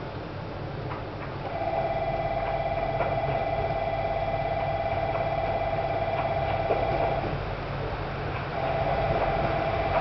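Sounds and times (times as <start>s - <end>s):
railway warning bell ringing: 1.5s - 7.3s, 8.6s - 10.0s.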